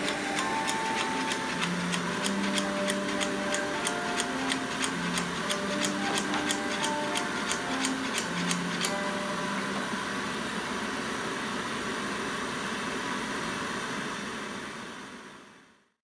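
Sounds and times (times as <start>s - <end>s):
hammer tapping on a chisel: 0.0s - 8.9s
workshop background hiss: 0.0s - 15.9s.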